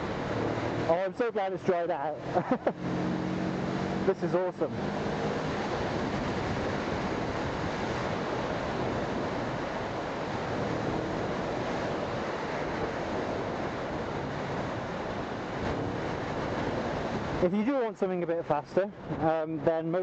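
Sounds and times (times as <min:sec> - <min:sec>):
wind buffeting microphone: 0:04.7 - 0:17.9, 0:18.9 - 0:19.7.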